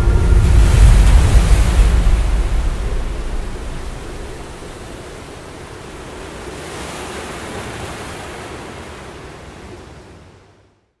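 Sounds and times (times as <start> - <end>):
steady rushing noise: 0.0 - 6.5.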